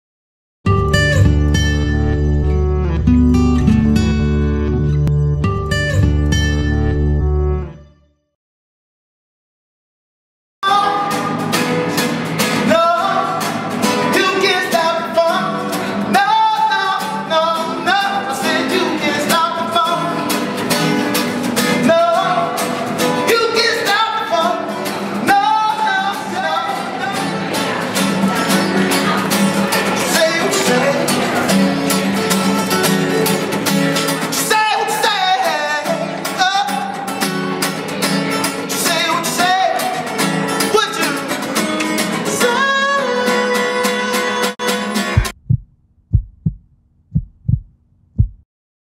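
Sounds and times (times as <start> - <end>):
strummed acoustic guitar: 0.7 - 7.7, 10.6 - 45.3
man singing: 10.6 - 11.7, 12.4 - 20.5, 21.6 - 31.8, 34.2 - 37.5, 38.1 - 45.2.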